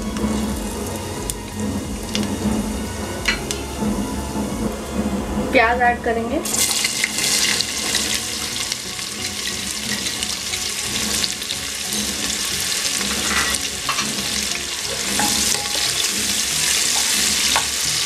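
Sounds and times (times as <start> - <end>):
onions sizzling in hot oil: 0.0 - 3.6, 6.4 - 18.0.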